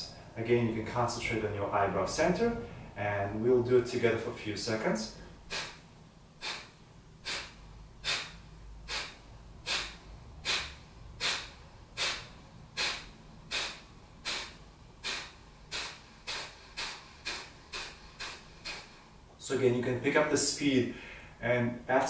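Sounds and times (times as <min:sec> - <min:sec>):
man exhaling sharply through nose: 0:05.2 - 0:19.3, 0:20.9 - 0:21.4.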